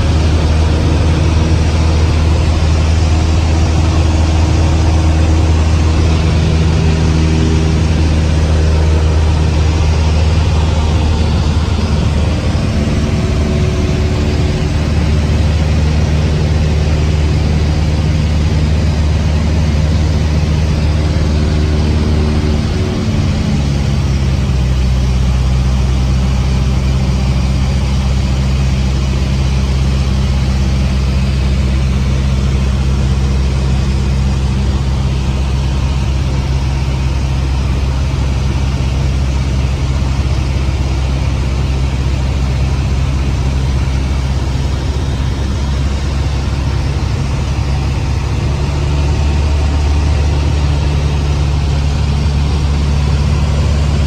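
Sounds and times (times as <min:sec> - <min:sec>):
light aircraft engine drone: 0:00.0 - 0:54.0.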